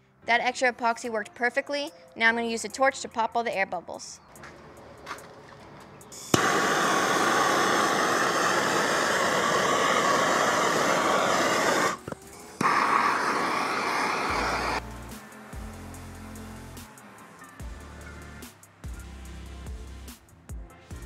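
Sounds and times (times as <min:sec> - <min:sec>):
background music: 0:00.0 - 0:21.0
gas torch hissing: 0:06.0 - 0:14.9.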